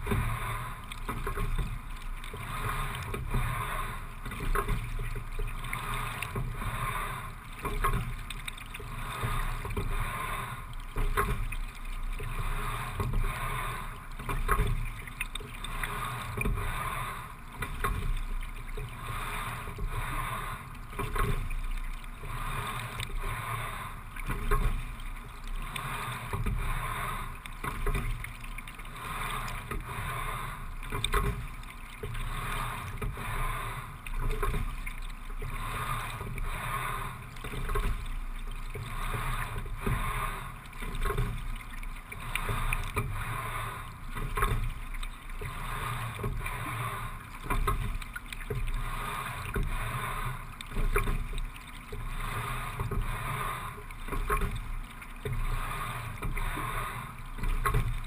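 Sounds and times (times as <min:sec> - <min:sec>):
water noise from rowing: 0:00.0 - 0:58.0.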